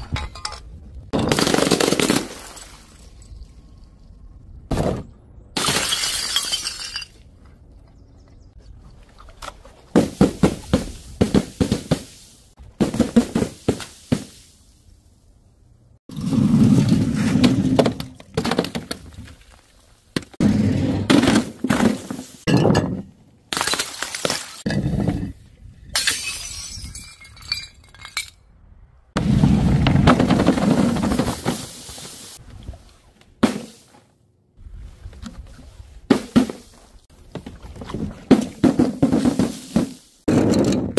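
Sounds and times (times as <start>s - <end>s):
bottles and cans smashing: 1.1s - 3.0s, 5.6s - 7.2s, 20.2s - 25.0s, 26.0s - 28.4s.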